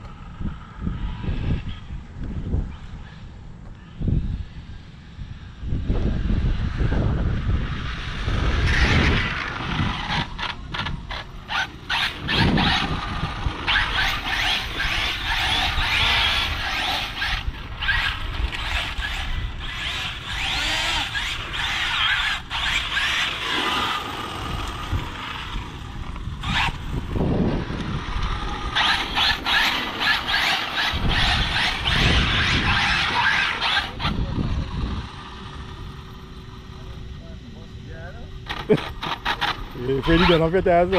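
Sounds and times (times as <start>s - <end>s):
rc car motor whine: 0.0s - 40.9s.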